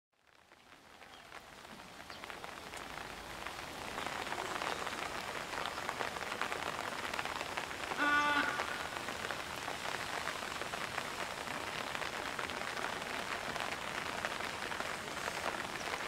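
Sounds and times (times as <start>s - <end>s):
heavy rain pouring: 0.2s - 16.0s
raindrops tapping: 0.2s - 16.0s
brief pitched call: 8.0s - 9.1s.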